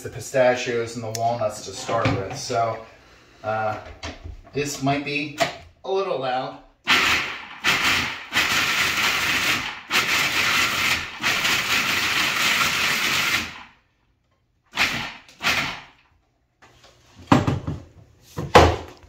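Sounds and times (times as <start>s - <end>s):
food processor chopping nuts: 6.9s - 13.7s, 14.7s - 16.0s.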